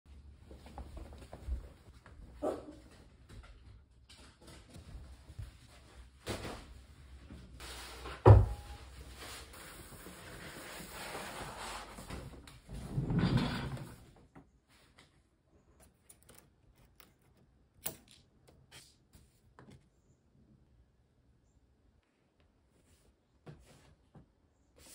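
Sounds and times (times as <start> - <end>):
paper rustling and sliding: 8.8 - 12.2.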